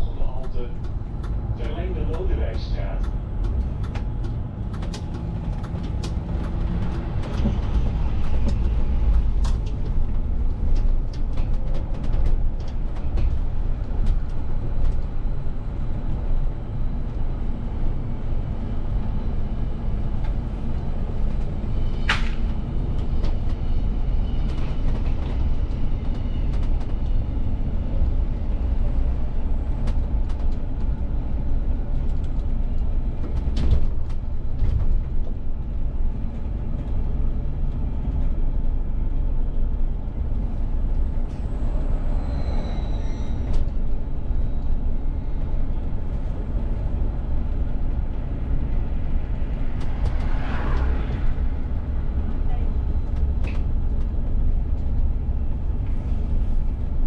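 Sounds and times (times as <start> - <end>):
bus engine and road rumble: 0.0 - 57.0
sharp squeal: 41.9 - 43.6.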